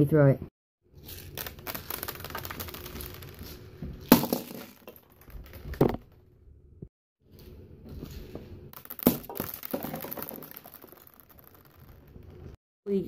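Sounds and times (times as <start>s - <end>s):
small pellets clicking: 1.0s - 3.6s, 8.8s - 12.6s.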